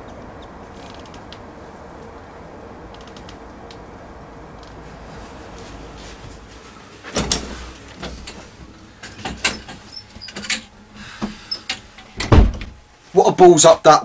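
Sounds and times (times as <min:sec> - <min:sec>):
heavy thump: 0:12.2 - 0:12.8
knocks and clatters of doors: 0:12.2 - 0:12.8.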